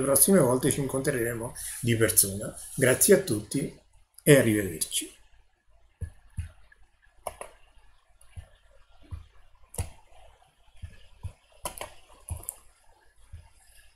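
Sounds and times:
soft thumps and sharp ticks: 6.0 - 7.6, 8.2 - 13.8.

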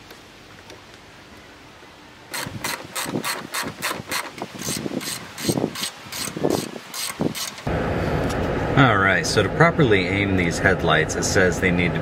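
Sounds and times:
ratchet wrench clicking: 2.3 - 7.7.

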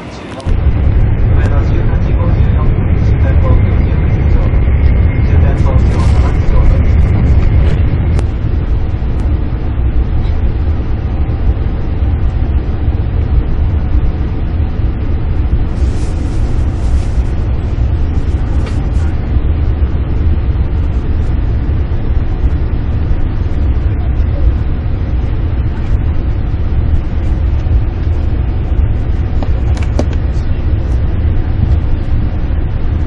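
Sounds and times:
train cabin low rumble: 0.0 - 33.0
passing train rush of hiss: 15.7 - 19.2.

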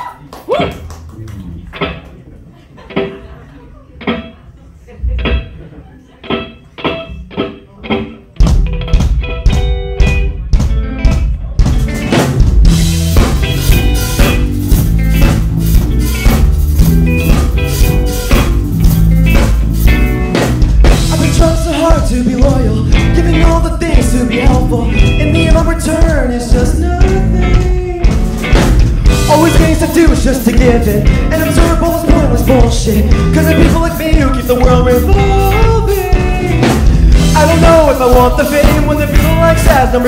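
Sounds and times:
live rock band playing: 0.3 - 40.0
bending guitar melody: 0.6 - 3.4, 4.0 - 40.0.

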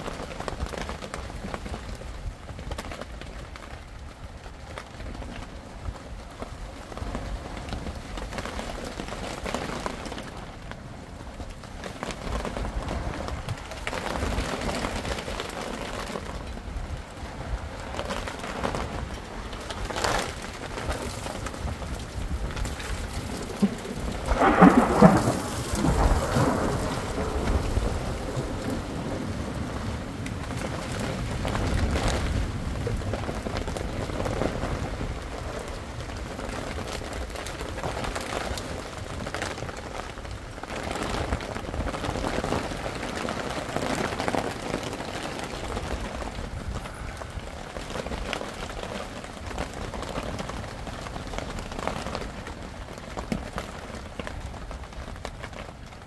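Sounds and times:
steady rain: 0.0 - 56.0
rolling thunder: 20.6 - 36.2.

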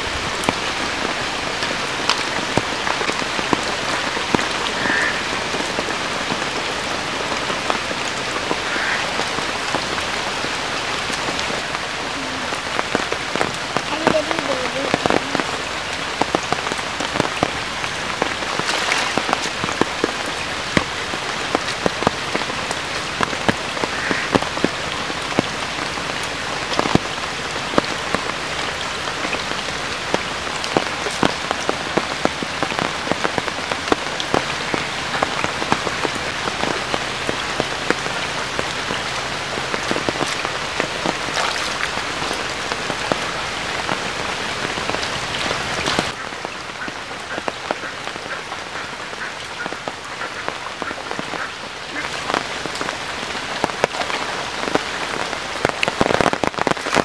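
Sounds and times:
rain falling on muddy water: 0.0 - 57.0.

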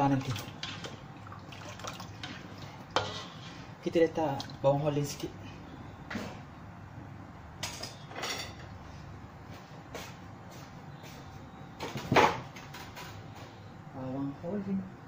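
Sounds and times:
faint steady background noise: 0.0 - 15.0
kitchen knocks and scrapes: 3.0 - 3.5.

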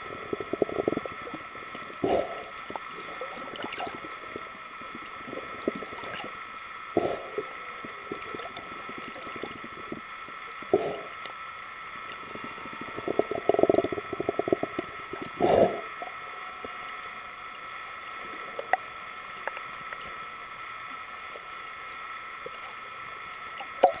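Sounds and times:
bubbling crackling noise: 0.0 - 16.8
steady high underwater hum: 0.0 - 24.0.

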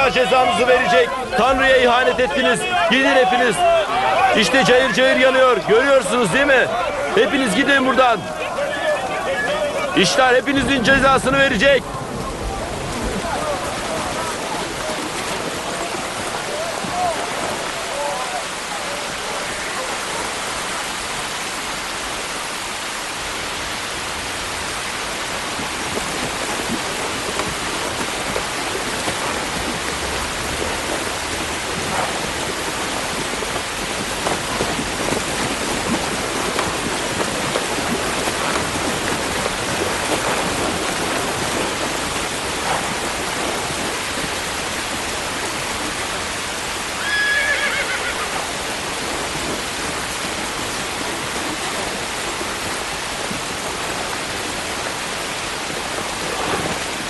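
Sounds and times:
steady rain falling: 0.0 - 57.0
horse whinnying: 47.0 - 48.6.

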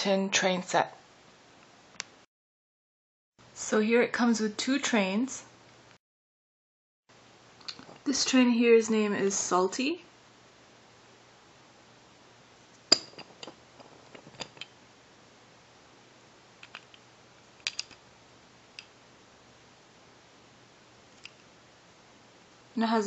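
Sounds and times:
wooden toy clicking: 17.6 - 18.0.

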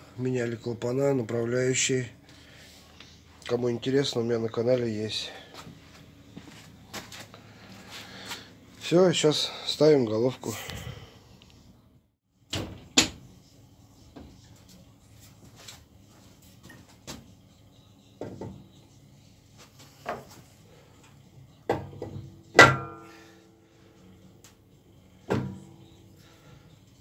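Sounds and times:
loud ringing metal clank: 22.6 - 23.4.

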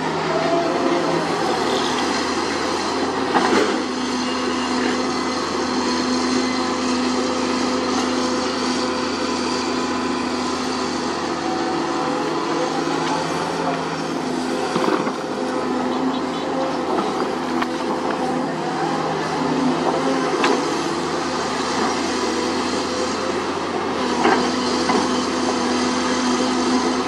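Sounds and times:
excavator diesel engine under load: 0.0 - 27.0.

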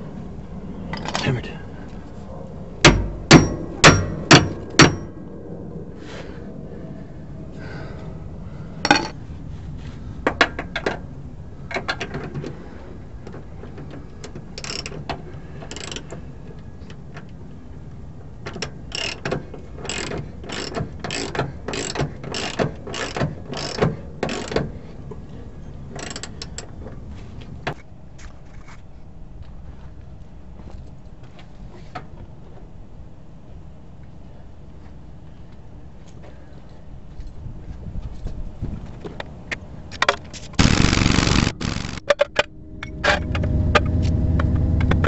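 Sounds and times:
ratchet wrench clicking: 18.9 - 19.2, 19.9 - 24.6.

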